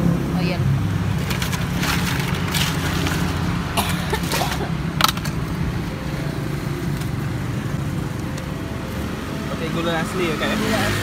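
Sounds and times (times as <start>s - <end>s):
low traffic hum: 0.0s - 11.0s
hand rummaging in ice: 1.2s - 3.5s.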